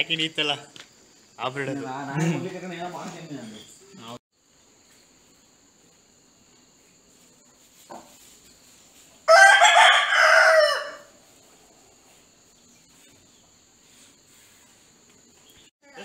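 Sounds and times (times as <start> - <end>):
rooster crowing: 9.2 - 11.2.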